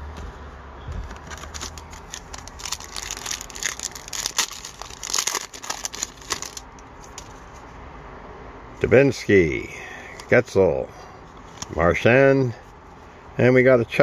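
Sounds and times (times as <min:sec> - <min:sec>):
foil wrapper tearing and crinkling: 0:01.2 - 0:07.3.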